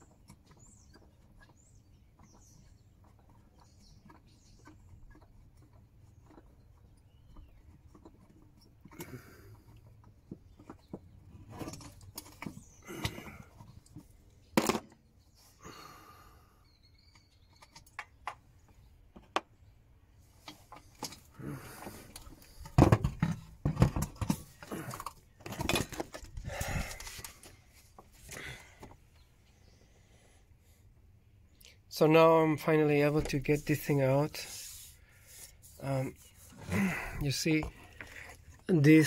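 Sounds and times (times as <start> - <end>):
engine parts and tools rattling: 0.0 - 15.1, 20.2 - 29.1.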